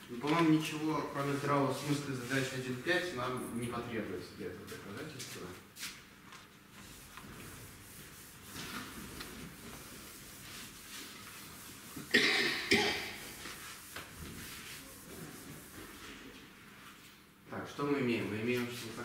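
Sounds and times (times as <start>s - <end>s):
chalk writing on blackboard: 6.8s - 16.4s
person coughing: 12.1s - 13.2s.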